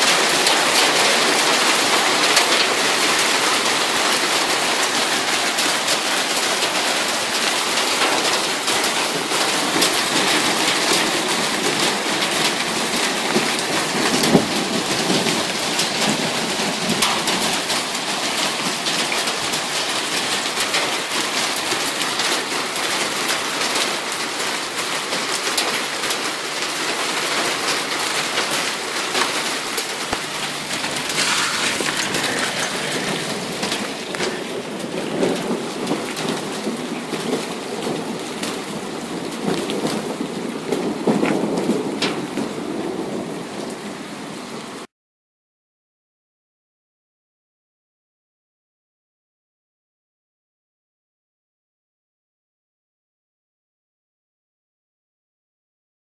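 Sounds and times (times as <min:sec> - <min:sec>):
hailstones pelting hard surfaces: 0:00.0 - 0:43.3.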